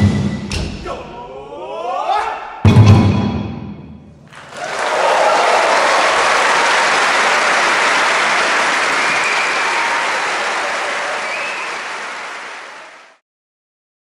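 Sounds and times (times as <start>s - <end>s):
audience applauding: 4.2s - 13.2s.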